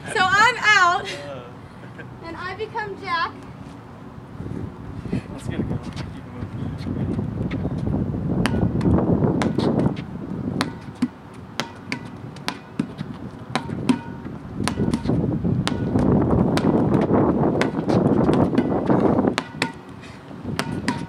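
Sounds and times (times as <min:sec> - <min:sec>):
wind on microphone: 0:04.3 - 0:11.0, 0:12.1 - 0:21.0
rubber ball bouncing on concrete: 0:08.4 - 0:21.0.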